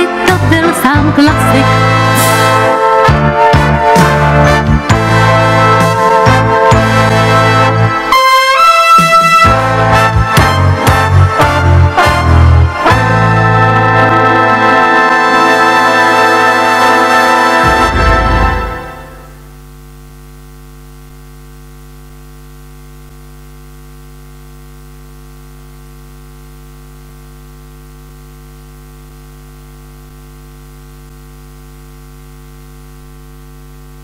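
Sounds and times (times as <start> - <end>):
brass chord: 0.0 - 20.2
electrical mains hum: 17.6 - 34.0.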